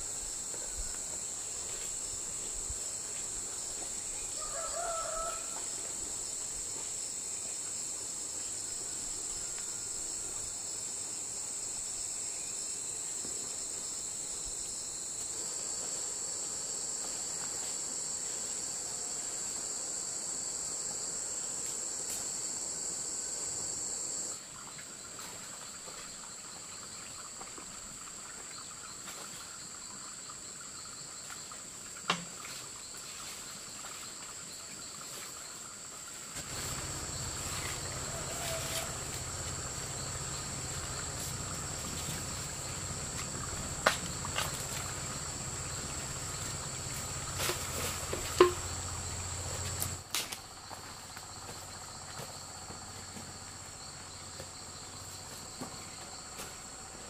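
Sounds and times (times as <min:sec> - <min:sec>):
high-pitched insect chorus: 0:00.0 - 0:57.0
chicken call: 0:38.0 - 0:39.1.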